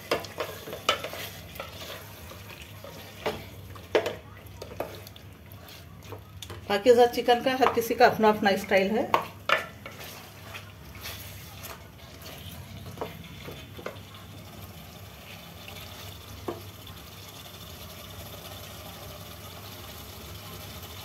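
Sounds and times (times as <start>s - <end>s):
thick gravy squelching: 0.2s - 6.6s, 9.6s - 14.1s
spoon knocking against pot: 9.1s - 9.7s.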